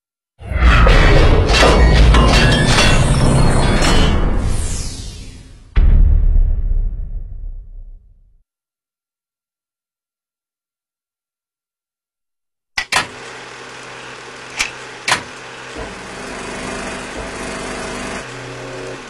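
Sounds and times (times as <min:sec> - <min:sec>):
sharp clicks or knocks: 0:12.8 - 0:13.2, 0:14.6 - 0:15.3
machine running with low hum: 0:12.8 - 0:19.0.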